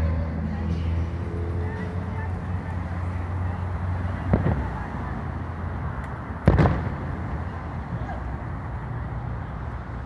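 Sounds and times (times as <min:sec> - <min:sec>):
low rumble of street traffic: 0:00.0 - 0:10.0
distant firework booms: 0:06.4 - 0:07.2.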